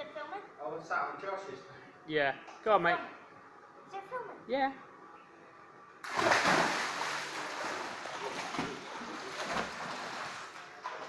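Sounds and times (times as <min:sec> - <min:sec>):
loud splash into pool: 0:06.0 - 0:10.6
water splashing from swimming: 0:06.0 - 0:11.0.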